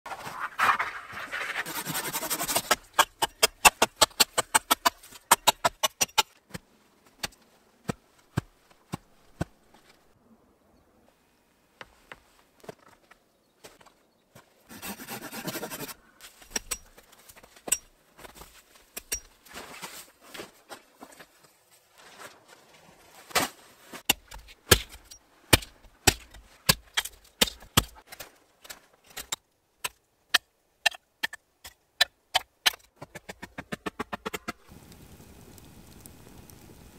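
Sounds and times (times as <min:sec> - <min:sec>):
hatchet driving stake into ground: 0:02.5 - 0:06.4
rustle: 0:15.4 - 0:27.3, 0:34.4 - 0:36.9.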